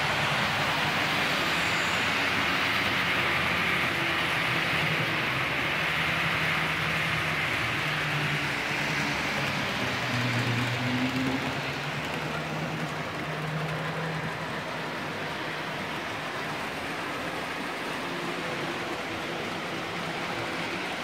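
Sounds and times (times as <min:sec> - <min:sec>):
model trains rolling on track: 0:00.0 - 0:21.0.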